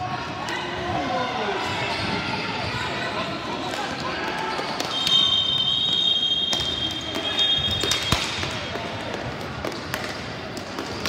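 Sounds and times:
referee's whistle blast: 0:04.8 - 0:08.4
sticks and ball clacking on floor: 0:06.5 - 0:11.0.

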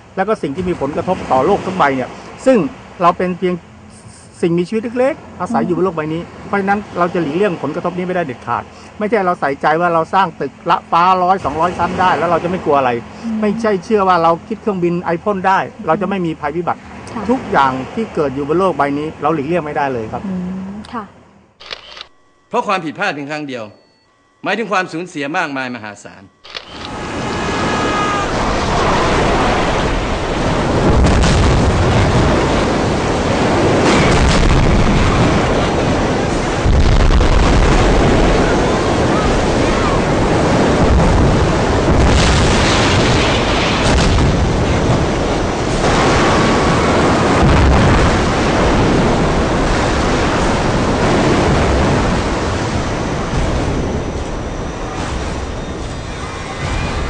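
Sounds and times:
surging water: 0:00.0 - 0:03.8, 0:04.5 - 0:20.1, 0:26.7 - 0:57.0
wind: 0:00.0 - 0:57.0
heavy crashes: 0:27.0 - 0:38.8, 0:40.4 - 0:57.0.

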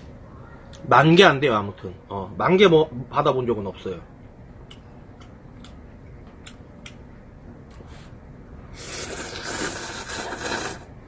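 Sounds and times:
man slurping noodles: 0:08.8 - 0:10.9.

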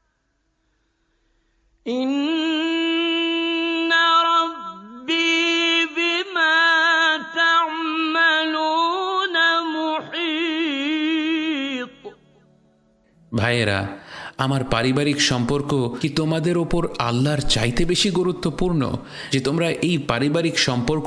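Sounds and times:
person chanting: 0:13.3 - 0:21.0.

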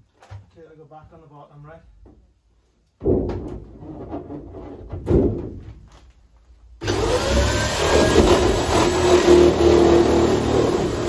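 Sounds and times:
knocks against sheet metal: 0:03.0 - 0:03.6.

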